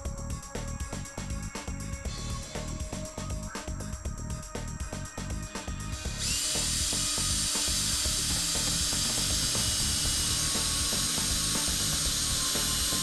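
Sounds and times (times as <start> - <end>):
cordless drill whining: 6.0 - 13.0.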